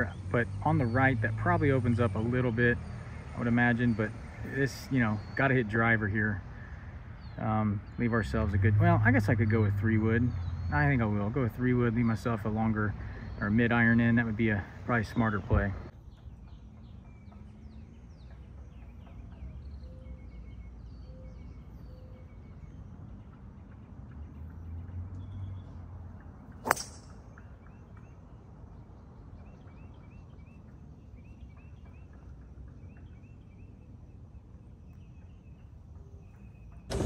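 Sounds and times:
birds chirping: 0.0 - 37.0
golf club striking ball: 26.6 - 27.4.

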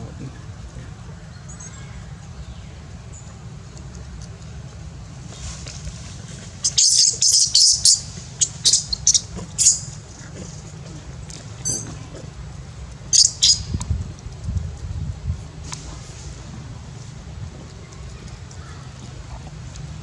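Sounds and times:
low wind rumble: 0.0 - 20.0
high-pitched animal squeaks: 6.6 - 10.0, 11.6 - 12.0, 13.2 - 13.7.

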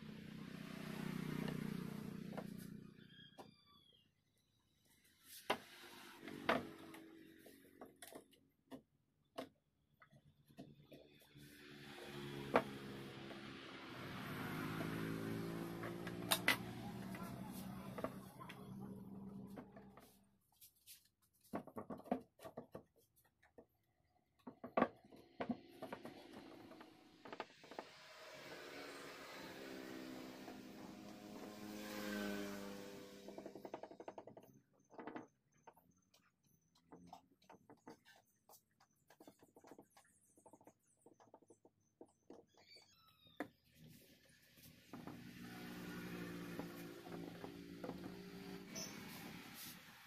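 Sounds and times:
vehicle engine noise: 0.0 - 3.2, 11.1 - 20.2, 25.1 - 35.2, 43.7 - 50.0
wooden knocks and taps: 21.5 - 23.8.

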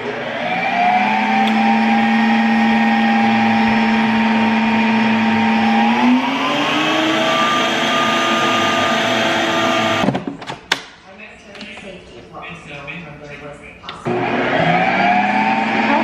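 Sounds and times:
ice cream maker motor whining: 0.0 - 10.2, 14.1 - 16.0.

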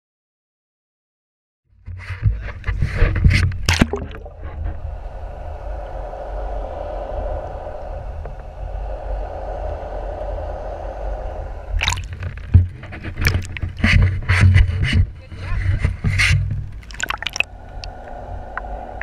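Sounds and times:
muffled underwater rumble: 2.0 - 19.0
sharp splashing: 3.6 - 4.3, 11.8 - 12.2, 13.2 - 13.8, 16.8 - 18.1.

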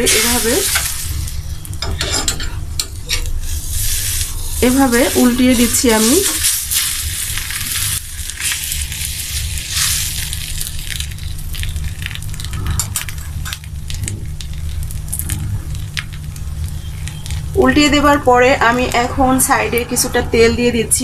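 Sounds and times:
crepe sizzling on a griddle: 0.0 - 18.0
low hum: 0.0 - 21.0.

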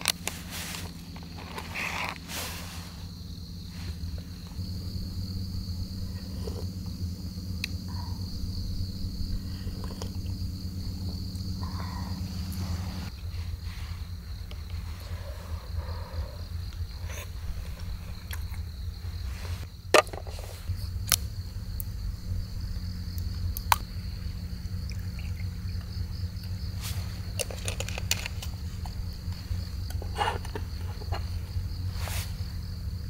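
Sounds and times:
crickets chirping: 0.0 - 33.0
low rumble: 0.0 - 33.0.

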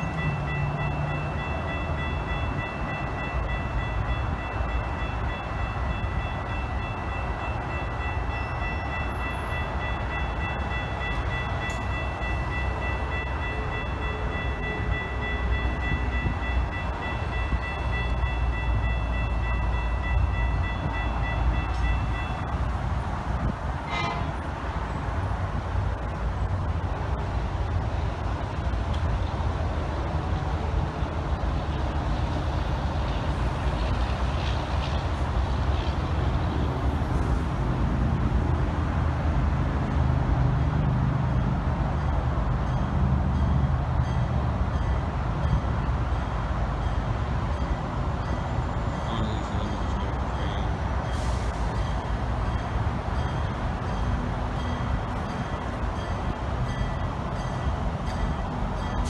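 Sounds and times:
crossing bell ringing rapidly: 0.0 - 22.8, 46.8 - 59.0.

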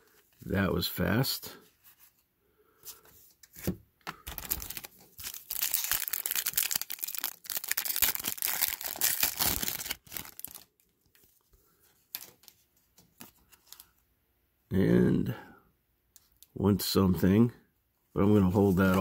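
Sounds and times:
cards being handled: 2.8 - 11.3, 12.0 - 14.0, 18.5 - 19.0
foil wrapper tearing and crinkling: 4.2 - 10.7.

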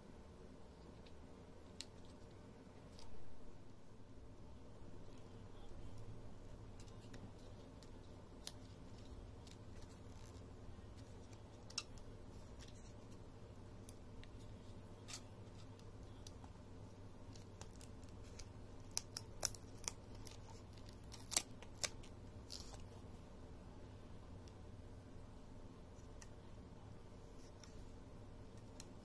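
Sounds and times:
faint foil crinkling: 5.0 - 23.1
small clicks of peeling tape: 11.0 - 13.2, 17.3 - 23.0, 28.5 - 29.0.

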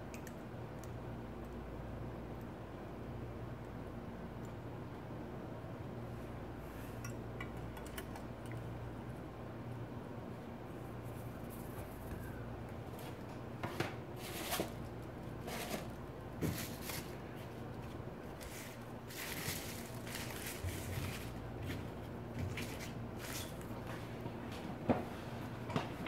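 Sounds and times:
plastic bags and bubble wrap rustling: 14.1 - 23.9.

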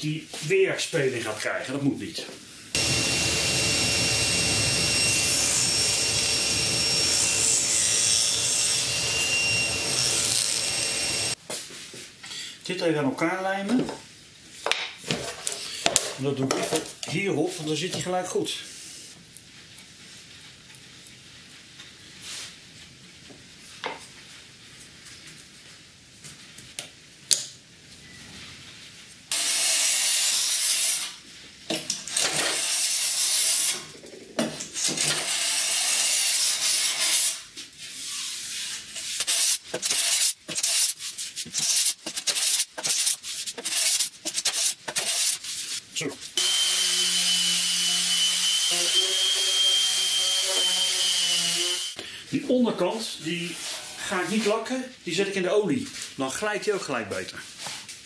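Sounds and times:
orbital sander whining: 2.8 - 11.4, 46.4 - 52.0
glue brushing: 37.8 - 45.9
hand plane shaving wood: 38.8 - 45.4.

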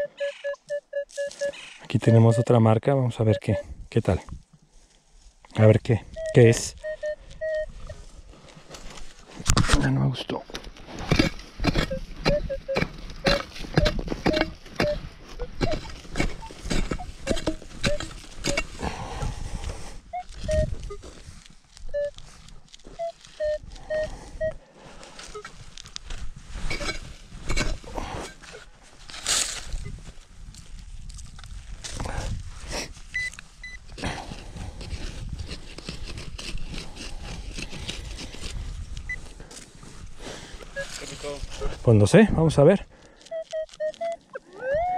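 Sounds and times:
metal detector beeps: 0.0 - 3.7, 5.6 - 8.0, 11.1 - 18.8, 20.1 - 21.2, 21.9 - 22.3, 22.9 - 24.6, 25.2 - 25.5, 26.6 - 27.0, 27.6 - 28.7, 29.8 - 30.0, 33.1 - 33.8, 40.7 - 41.4, 43.2 - 44.9
dirt scraping: 0.0 - 44.9
hoe scraping soil: 10.5 - 21.3, 26.4 - 29.8, 32.7 - 38.9
digging tool stabbing into soil: 10.9 - 18.8.

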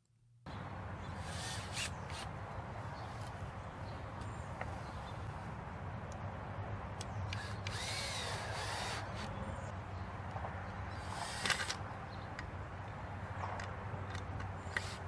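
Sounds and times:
cordless drill motor whining: 1.2 - 2.2, 7.3 - 9.3.

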